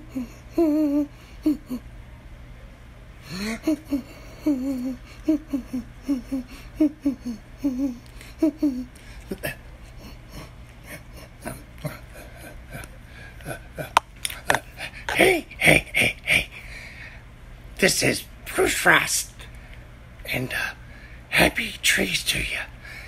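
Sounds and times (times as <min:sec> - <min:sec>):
person humming: 0:00.0 - 0:01.8, 0:03.2 - 0:16.6.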